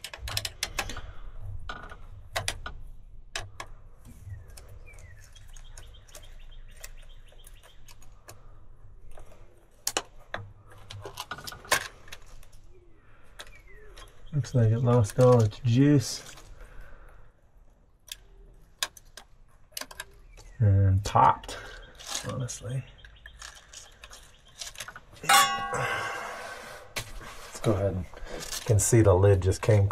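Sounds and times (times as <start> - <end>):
bird chirping: 4.0 - 9.4, 12.1 - 17.4, 18.0 - 26.9.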